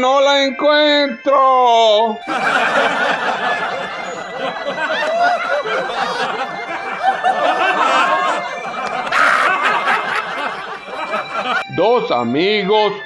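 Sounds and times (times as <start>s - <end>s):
audience laughing: 2.2s - 11.6s.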